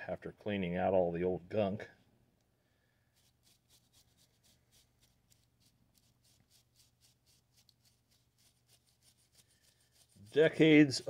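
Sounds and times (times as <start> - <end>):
quick rubbing strokes: 3.0 - 11.0.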